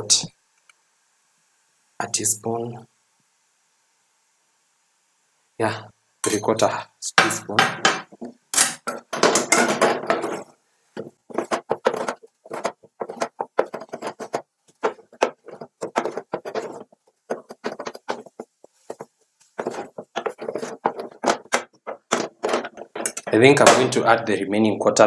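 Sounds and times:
wooden spoon scraping metal pot: 0:07.8 - 0:23.9.

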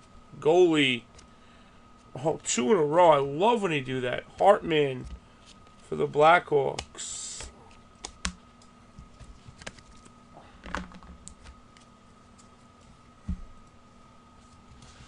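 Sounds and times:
cards clicking and tapping: 0:06.7 - 0:08.4.

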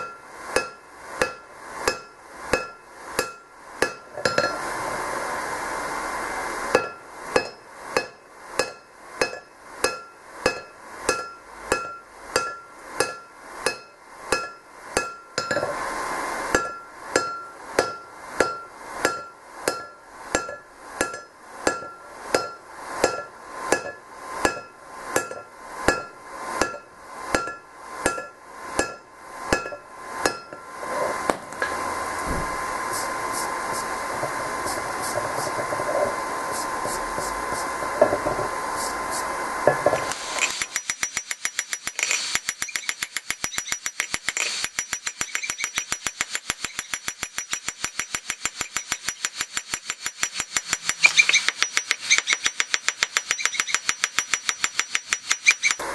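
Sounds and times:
hammer ringing on hot metal: 0:00.0 - 0:04.6, 0:06.7 - 0:15.6, 0:16.5 - 0:30.7, 0:40.6 - 0:55.8
steady hiss: 0:00.0 - 0:55.9.

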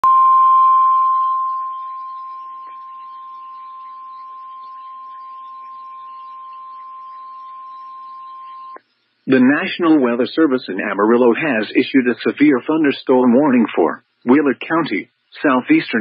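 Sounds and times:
steady warning alarm tone: 0:00.0 - 0:08.8.

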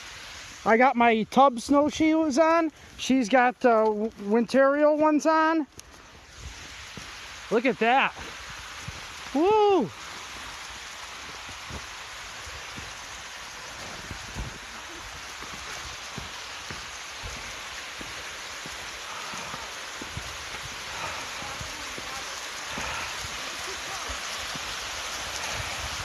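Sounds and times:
stream rushing over rocks: 0:00.0 - 0:26.0
snowshoe steps in deep snow: 0:11.2 - 0:25.8.

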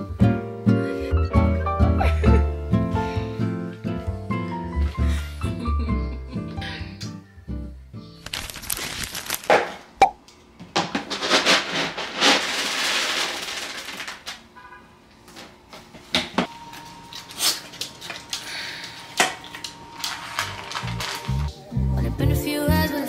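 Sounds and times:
cardboard rustling and tearing: 0:08.3 - 0:09.8.

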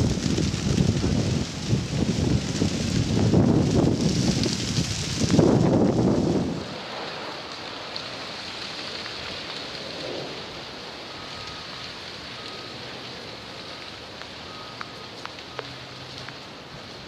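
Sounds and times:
freezing rain hissing: 0:00.0 - 0:17.0
light ticks: 0:14.2 - 0:16.5.

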